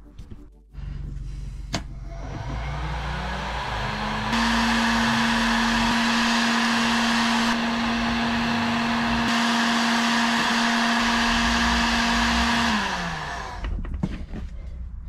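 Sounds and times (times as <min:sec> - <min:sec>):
heat gun fan humming: 0:02.4 - 0:13.7.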